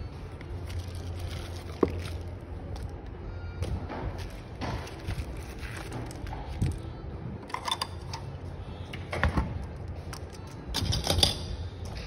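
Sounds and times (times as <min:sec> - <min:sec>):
steady low hum: 0:00.0 - 0:12.0
unboxing clicks and rustles: 0:04.2 - 0:06.9.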